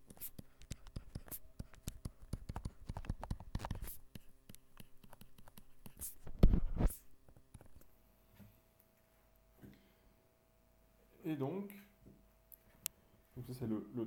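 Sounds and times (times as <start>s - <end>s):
stylus tapping and scratching: 0.0s - 7.9s.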